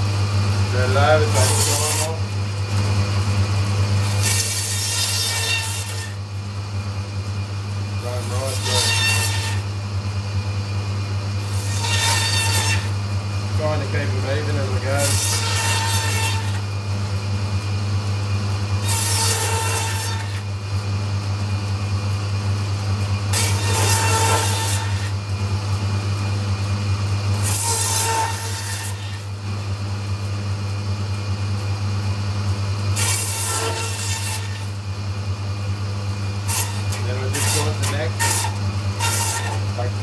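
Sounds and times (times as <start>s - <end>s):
bandsaw motor hum: 0.0s - 40.0s
bandsaw cutting through bone: 0.7s - 2.3s, 4.0s - 6.2s, 8.0s - 9.7s, 11.4s - 13.0s, 13.7s - 16.7s, 18.8s - 20.5s, 23.3s - 25.2s, 27.3s - 29.3s, 32.9s - 34.8s, 36.4s - 40.0s.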